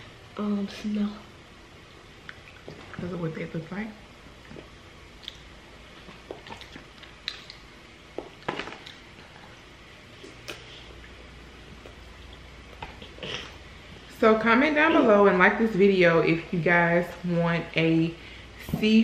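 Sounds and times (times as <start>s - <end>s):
wet squishes of eating: 1.8s - 3.2s, 4.3s - 14.1s.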